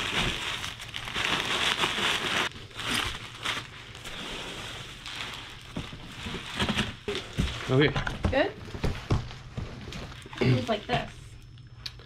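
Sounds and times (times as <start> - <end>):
bubble wrap crinkling: 0.0 - 7.9
packing peanuts rustling: 0.0 - 7.9.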